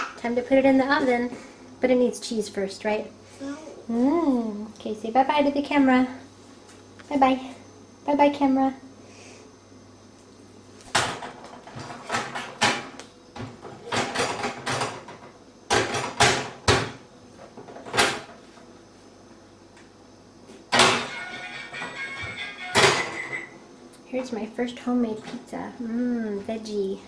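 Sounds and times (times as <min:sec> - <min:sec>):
sharp knocks and clatters: 0:10.9 - 0:18.4.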